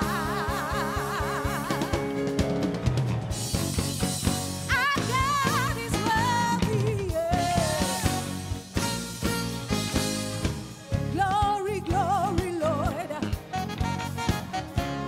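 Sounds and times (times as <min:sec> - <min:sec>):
gospel band playing: 0:00.0 - 0:15.0
woman singing with vibrato: 0:04.7 - 0:08.5, 0:11.1 - 0:13.4.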